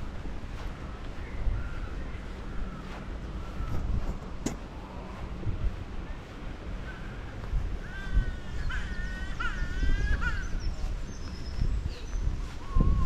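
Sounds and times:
wind on microphone: 0.0 - 13.0
crow-like bird calls: 6.8 - 12.1.

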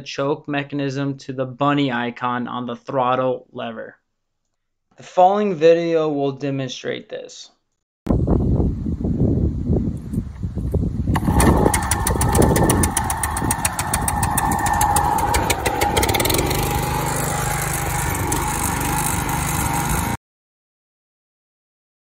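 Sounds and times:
lawn mower engine running: 11.1 - 20.2.

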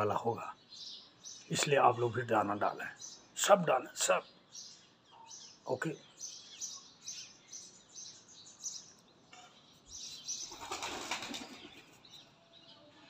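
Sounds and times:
small birds chirping: 0.0 - 13.0
pigeon wings flapping: 10.5 - 11.8.

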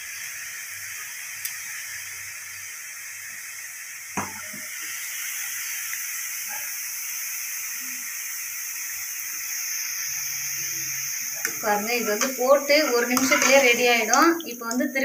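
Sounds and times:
food deep-frying in oil: 0.0 - 15.0.

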